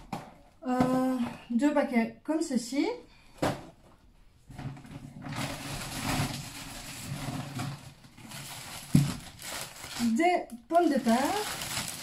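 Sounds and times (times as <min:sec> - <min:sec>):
plastic bag rustling: 0:04.8 - 0:12.0.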